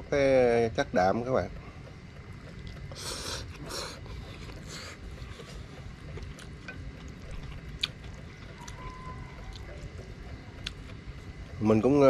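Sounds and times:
steady low rumble: 0.0 - 12.0
person slurping noodles: 2.9 - 5.6.

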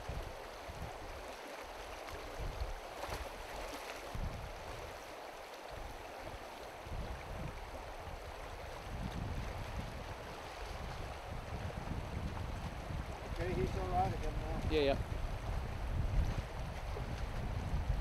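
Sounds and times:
river water rushing: 0.0 - 18.0
wind buffeting microphone: 4.0 - 4.9, 5.7 - 18.0.

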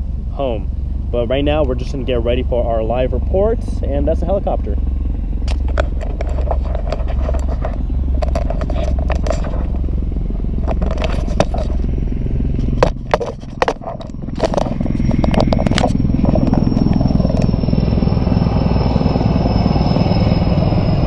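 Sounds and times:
drone rotor pulsing: 0.0 - 21.0
camera handling knocks and scrapes: 5.5 - 9.8, 10.6 - 11.9, 12.6 - 17.0.

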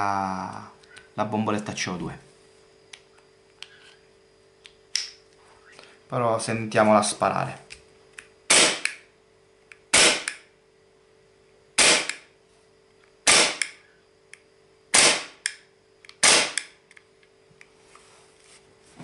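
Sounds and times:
airsoft pistol shots: 8.5 - 9.0, 9.9 - 10.4, 11.8 - 12.3, 13.2 - 13.8, 14.9 - 15.4, 16.2 - 16.8.

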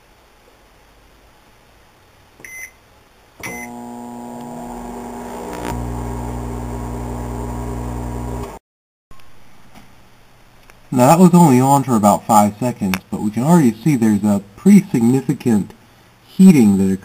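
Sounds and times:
microwave keypad beeps: 2.4 - 2.8, 3.4 - 3.8
microwave oven humming: 3.4 - 8.6.

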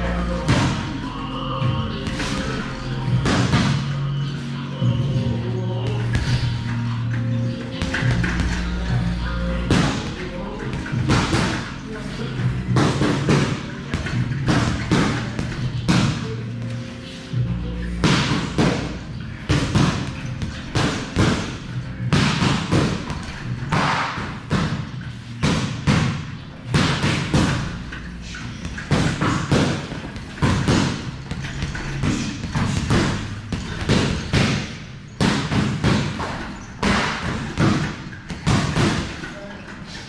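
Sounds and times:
boxing gloves punching bag: 0.3 - 1.0, 1.6 - 3.9, 7.8 - 8.9, 9.6 - 11.7, 12.7 - 16.4, 18.0 - 39.5.

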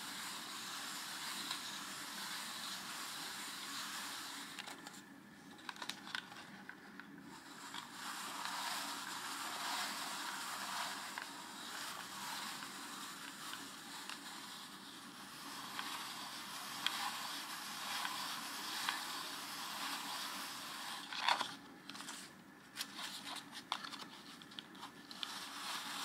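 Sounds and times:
paper slats scraping rustle: 7.3 - 26.0.

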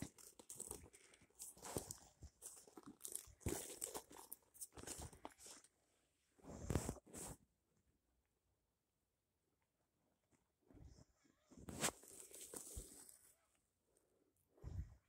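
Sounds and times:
bag rustling and crinkling: 0.0 - 5.7, 11.7 - 13.3.

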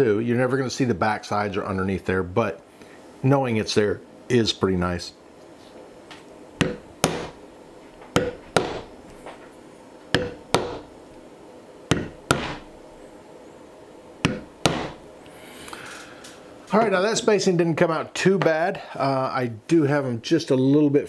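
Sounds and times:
mallet striking leather stamp: 6.6 - 7.4, 8.2 - 8.9, 10.1 - 10.9, 11.9 - 12.7, 14.2 - 15.0.

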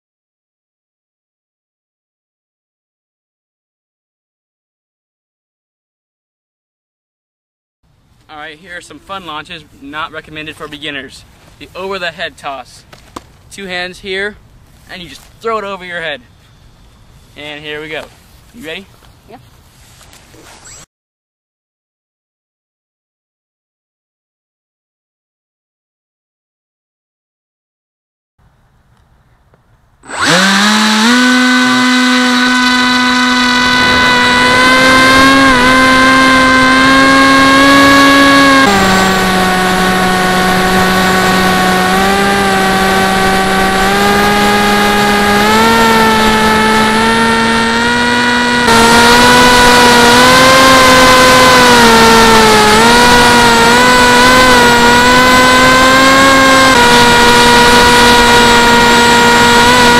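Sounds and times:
electric motor propeller whine: 30.0 - 59.9.

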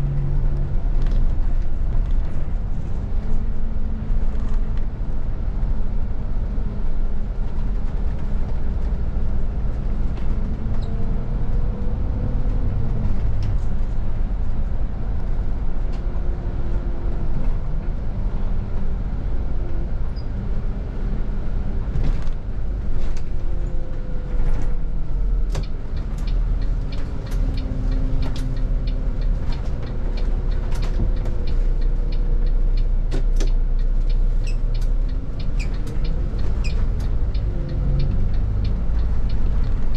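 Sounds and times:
bus engine and road rumble: 0.0 - 39.9
sharp clicks and rattles: 25.5 - 39.9.

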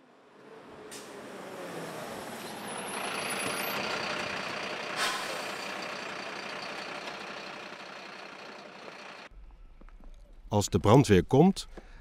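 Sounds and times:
fire engine diesel running: 2.6 - 9.3.

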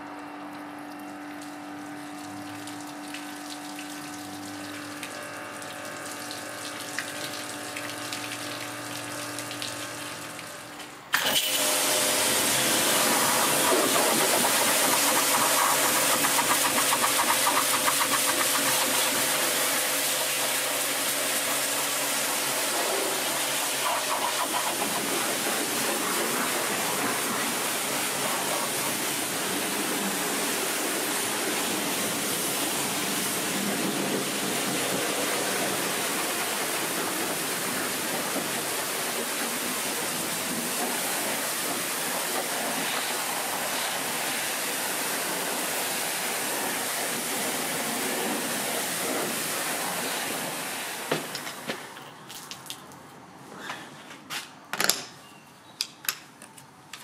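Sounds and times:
pressure washer motor hum: 0.0 - 52.0
water jet hissing on car: 11.6 - 51.3.

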